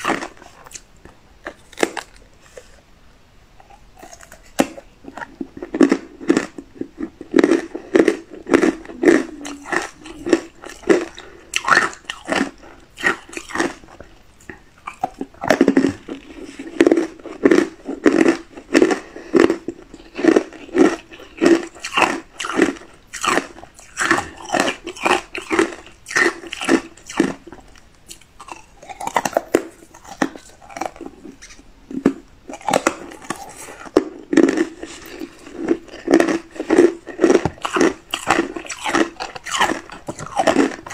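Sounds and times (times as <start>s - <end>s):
ice being chewed crunching: 0.0s - 2.8s, 3.6s - 40.9s.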